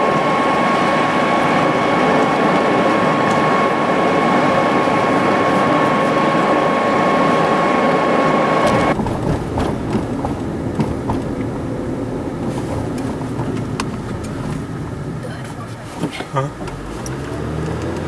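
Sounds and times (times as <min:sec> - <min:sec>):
high whine: 0:00.0 - 0:15.6
car road noise from inside: 0:00.0 - 0:18.0.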